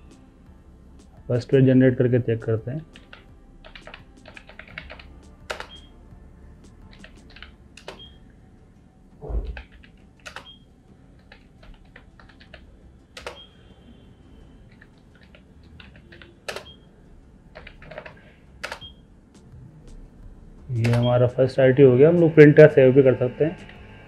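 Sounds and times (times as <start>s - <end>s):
keyboard key clicks: 13.2s - 13.4s, 15.2s - 16.8s.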